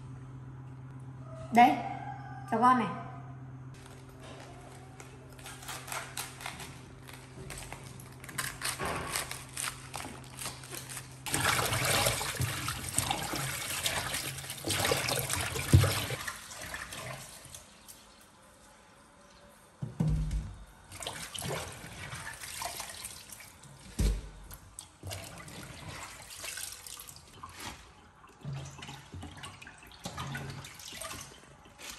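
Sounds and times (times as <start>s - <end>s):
cabbage crackling being cut: 5.0s - 11.3s.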